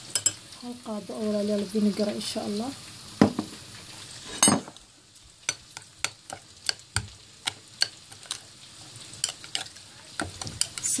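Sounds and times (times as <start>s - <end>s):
metal spoon clinking in bowl: 0.1s - 0.4s, 9.2s - 10.9s.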